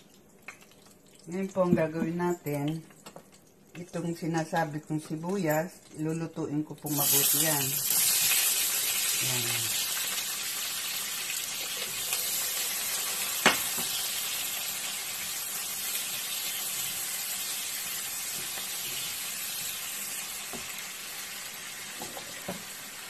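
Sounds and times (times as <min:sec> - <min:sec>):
onions sizzling in oil: 0:06.8 - 0:23.0.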